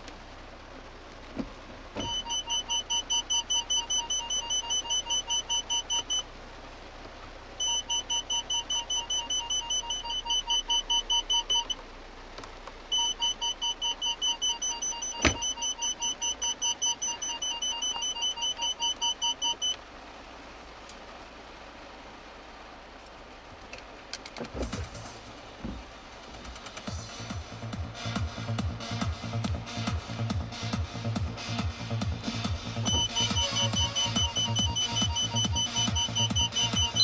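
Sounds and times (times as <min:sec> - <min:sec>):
parking sensor beeps: 0:02.0 - 0:06.3, 0:07.6 - 0:11.8, 0:12.9 - 0:19.8, 0:32.2 - 0:37.0.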